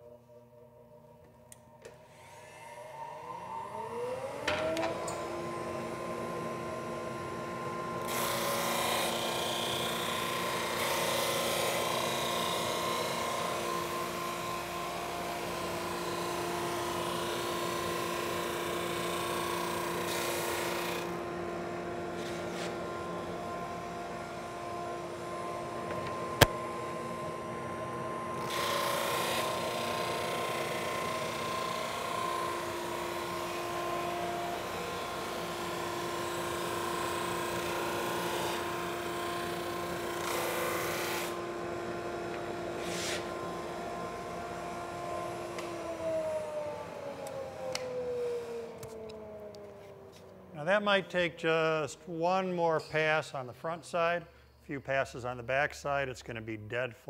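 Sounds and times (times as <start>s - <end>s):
drum sander hum: 2.5s - 50.4s
sanding hiss: 42.8s - 43.3s.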